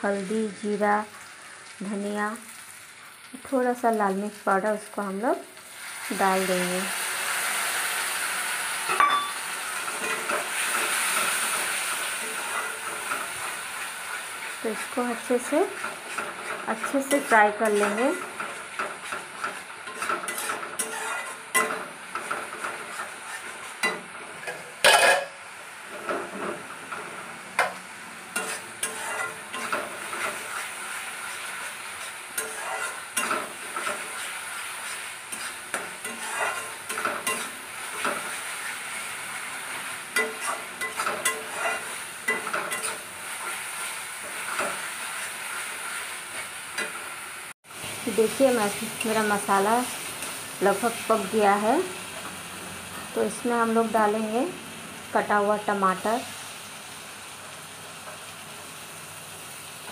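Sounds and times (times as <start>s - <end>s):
paste sizzling in oil: 0.0s - 59.9s
wooden spatula scraping pan: 13.8s - 21.6s, 22.2s - 25.2s, 28.4s - 46.5s.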